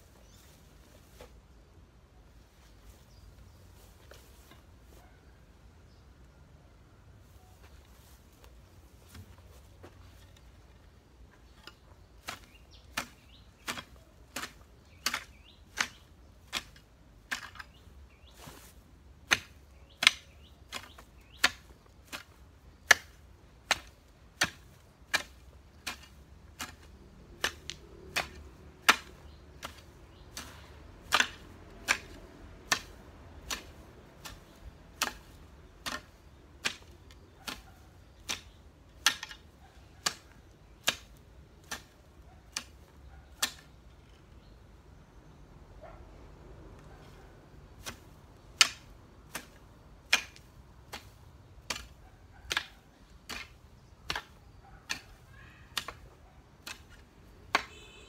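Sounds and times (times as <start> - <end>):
hoe chopping into soil: 11.5 - 43.8, 47.0 - 58.0.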